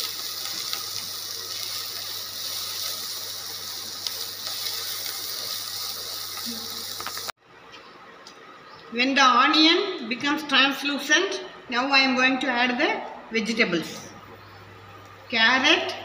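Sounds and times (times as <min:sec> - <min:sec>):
onion sizzling in hot oil: 0:00.0 - 0:07.4.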